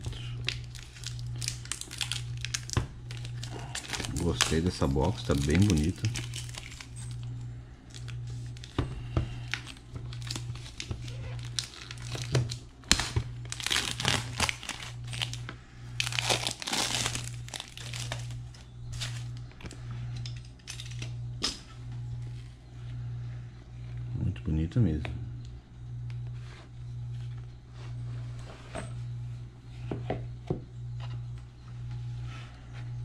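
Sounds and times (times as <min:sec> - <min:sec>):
plastic wrap crinkling and tearing: 0:00.0 - 0:07.2, 0:09.4 - 0:19.4
steady low hum: 0:00.0 - 0:33.0.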